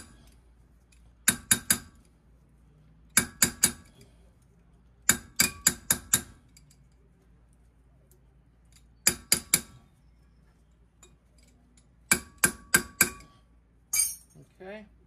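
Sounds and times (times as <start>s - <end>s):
wrench tapping metal: 13.9s - 14.3s.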